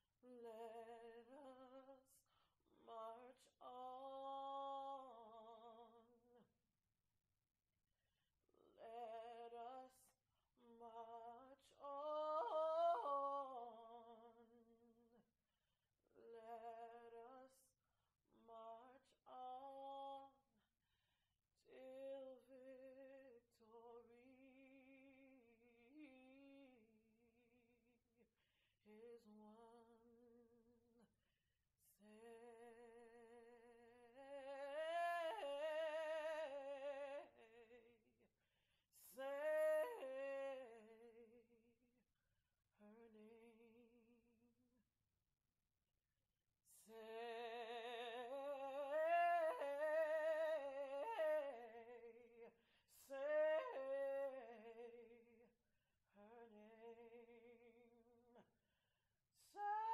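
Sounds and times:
woman singing unaccompanied: 0.0 - 2.2, 2.8 - 6.5, 8.6 - 15.3, 16.2 - 17.7, 18.3 - 20.4, 21.6 - 27.9, 28.9 - 30.7, 31.9 - 38.1, 39.0 - 41.7, 42.8 - 44.4, 46.7 - 58.5, 59.4 - 59.9.

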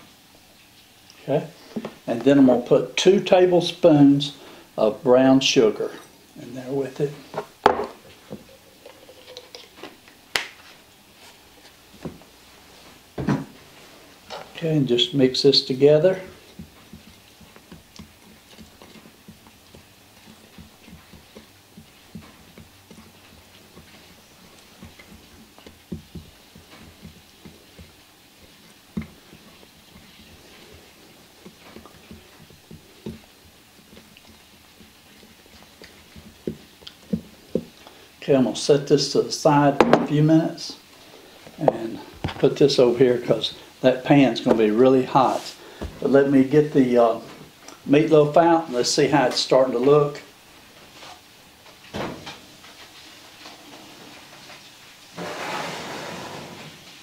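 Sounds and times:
spatula stirring thick sauce: 13.7 - 39.4.

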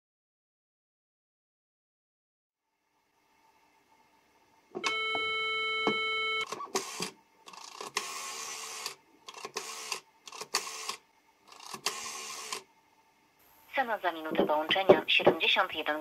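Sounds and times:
buzzy dial tone: 4.8 - 6.9
rotary dial whirring and clicking: 6.0 - 12.7.

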